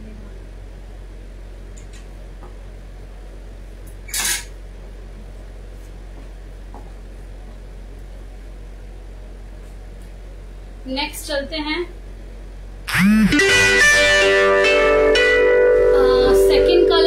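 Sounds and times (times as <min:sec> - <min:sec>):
low room hum: 0:00.0 - 0:17.0.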